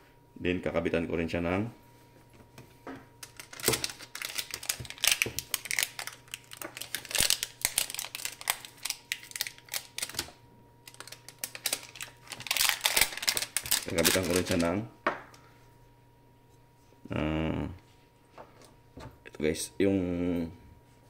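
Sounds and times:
faint steady hum: 0.0s - 21.0s
plastic packaging crinkling: 3.2s - 14.8s.

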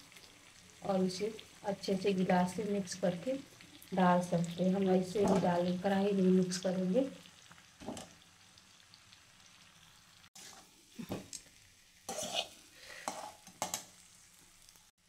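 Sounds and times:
faint sizzle: 0.0s - 15.0s
metal spatula scraping a pan: 10.4s - 10.8s, 12.1s - 13.8s.

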